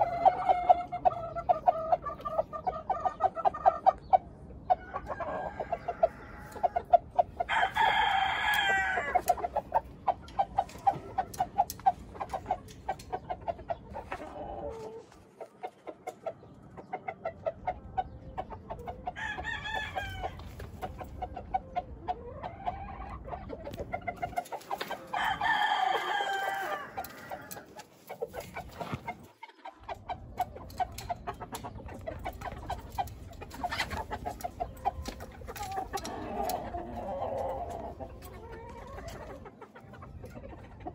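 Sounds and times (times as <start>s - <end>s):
chickens clucking: 0.0s - 40.9s
roosters crowing: 4.7s - 11.6s, 18.9s - 23.3s, 23.9s - 29.2s, 32.2s - 39.4s.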